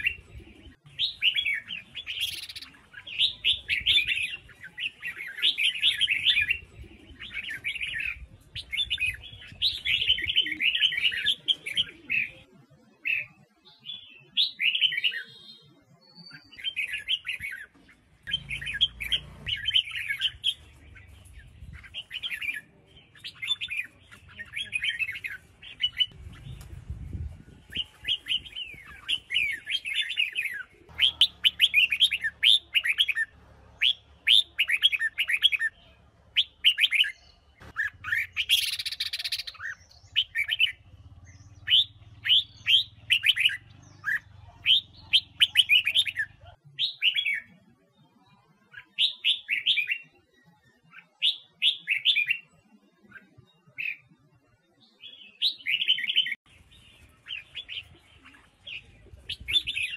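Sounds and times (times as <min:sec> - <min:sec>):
harsh bird call: 0:27.7 - 0:47.1.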